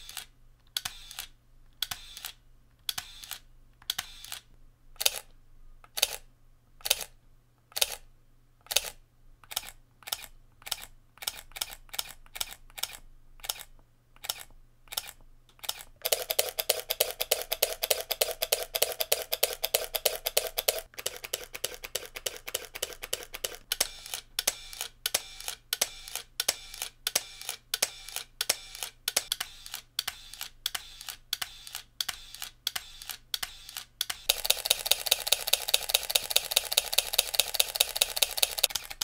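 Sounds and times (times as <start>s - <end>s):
camera shutter clicks: 0.0s - 5.3s, 8.7s - 39.0s
rapid burst of shutter clicks: 15.0s - 39.0s.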